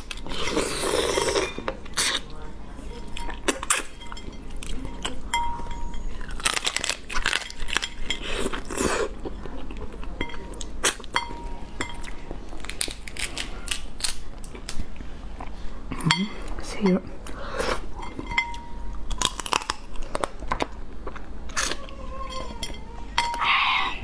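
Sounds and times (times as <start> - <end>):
crab shell cracking and crunching: 6.3 - 8.0, 12.6 - 14.8, 19.1 - 21.8.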